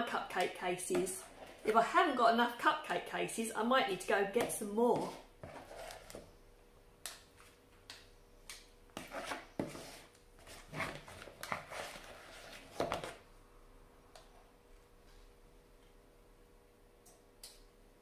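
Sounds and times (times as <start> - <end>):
spoon scraping paper cases: 4.9 - 6.2, 9.0 - 13.2.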